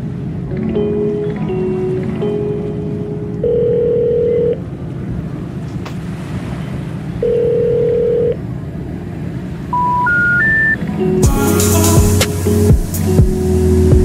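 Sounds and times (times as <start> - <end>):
long electronic tones: 0.8 - 4.6, 7.2 - 8.4, 9.7 - 14.0.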